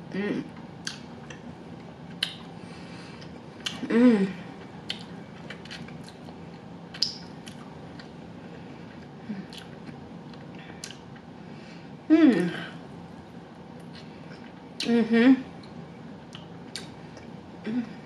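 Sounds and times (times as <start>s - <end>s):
person humming: 3.8s - 4.5s, 12.1s - 12.8s, 14.8s - 15.5s, 17.6s - 18.0s.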